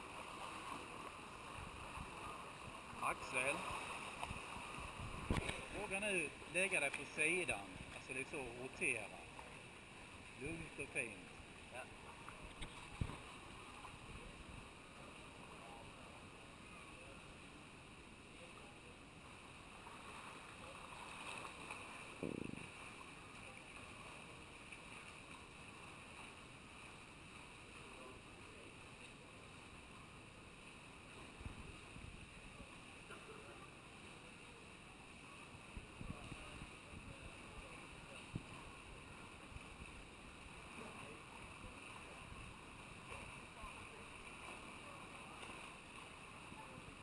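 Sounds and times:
distant swimmers splashing: 0.0 - 17.6, 18.4 - 33.7
faint steady hiss: 0.0 - 47.0
water noise: 0.0 - 47.0
soft low thumps: 22.2 - 22.8.

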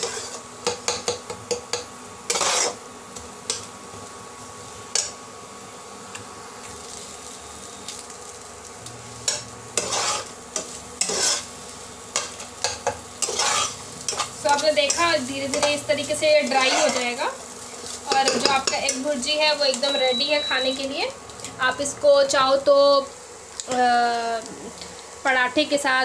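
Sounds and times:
spatula scraping pot: 0.0 - 0.4, 2.3 - 2.8, 9.3 - 19.1
faint frying sizzle: 0.0 - 26.0.

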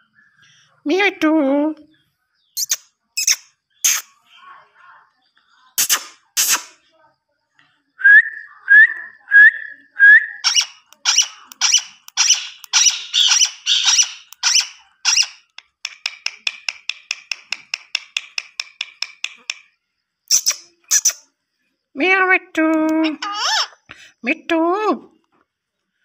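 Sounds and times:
parrot ticking chatter: 2.6 - 4.1, 10.4 - 19.7, 20.3 - 21.2, 22.7 - 23.8
parrot squawks: 10.4 - 15.4, 23.0 - 23.8.

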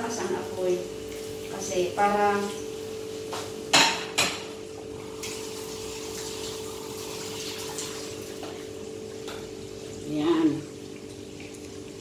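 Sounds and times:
fish sizzling in oil: 0.0 - 4.3, 4.9 - 12.0.

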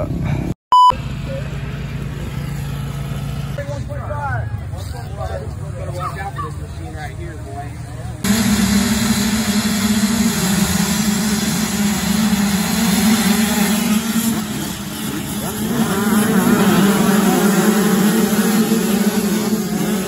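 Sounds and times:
motocross bikes revving: 7.9 - 20.0.

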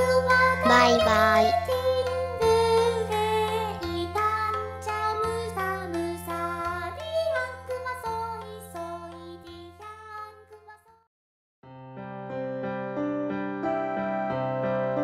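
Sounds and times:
person singing: 0.5 - 3.8.

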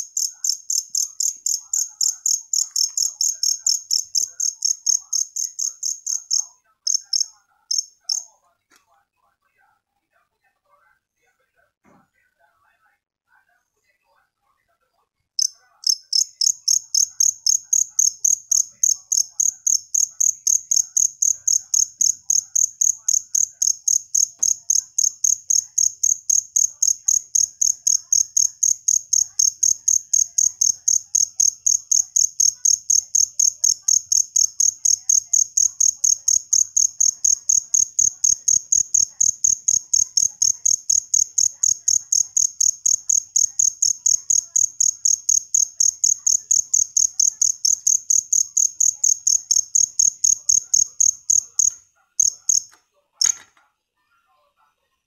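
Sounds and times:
cricket chirping: 0.0 - 8.3, 15.4 - 53.4.

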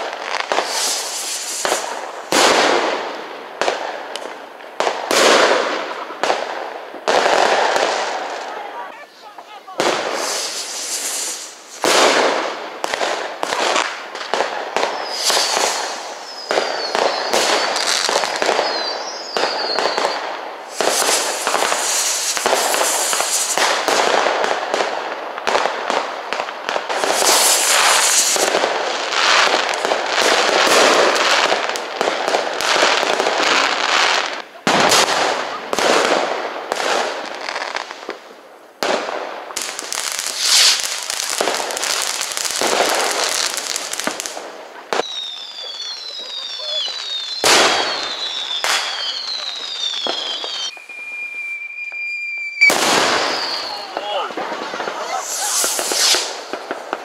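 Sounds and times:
fireworks crackling and popping: 0.0 - 57.0
high falling whistles: 14.9 - 23.6, 45.0 - 56.4.

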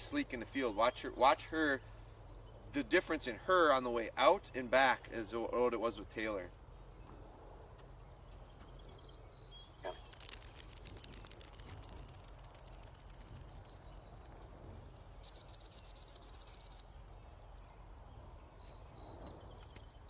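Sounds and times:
dog training whistle trilling: 15.2 - 17.1.

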